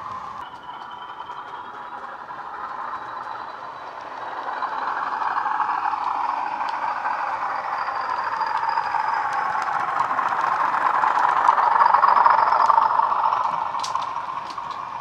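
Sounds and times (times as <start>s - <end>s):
thin high whistle: 0.0s - 9.9s
diesel engine sound from speakers: 0.0s - 15.0s.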